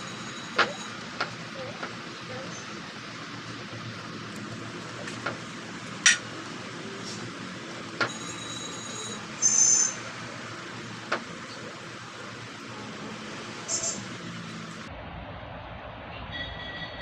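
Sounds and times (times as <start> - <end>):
high-pitched ringing clink: 0.0 - 1.0, 8.1 - 10.0.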